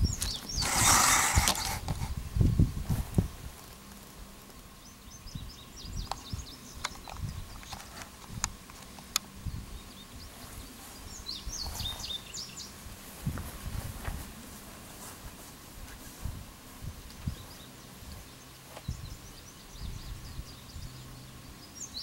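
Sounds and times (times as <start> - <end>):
low rumble on microphone: 0.0 - 3.6, 13.0 - 14.4
small birds chirping: 0.0 - 12.9, 16.8 - 22.0.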